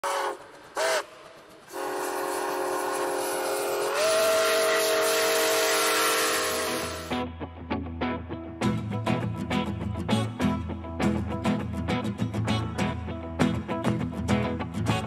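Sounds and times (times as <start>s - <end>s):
steam locomotive whistle: 0.0s - 7.2s.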